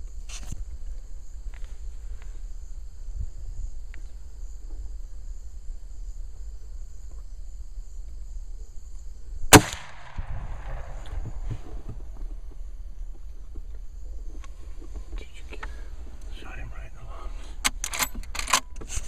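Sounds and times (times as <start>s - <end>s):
high-pitched insect chorus: 0.0s - 19.0s
rifle shot with echo: 9.5s - 11.4s.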